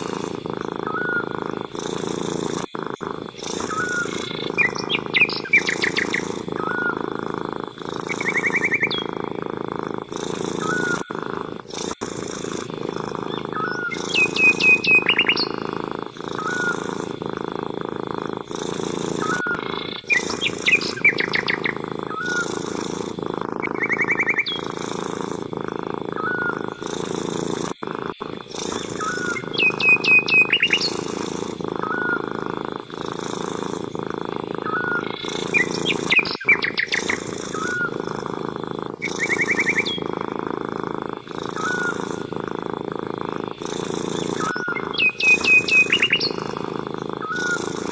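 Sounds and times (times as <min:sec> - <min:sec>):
cat purring: 0:00.0 - 0:47.9
small birds chirping: 0:00.0 - 0:47.9.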